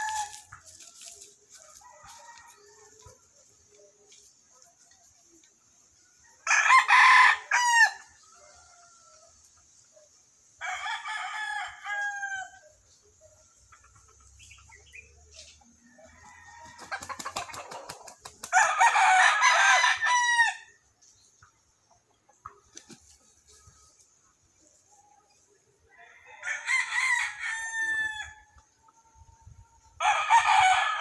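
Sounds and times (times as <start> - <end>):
rooster crowing: 6.4 - 9.3, 10.6 - 12.6, 18.5 - 20.7, 25.9 - 28.5, 30.0 - 31.0.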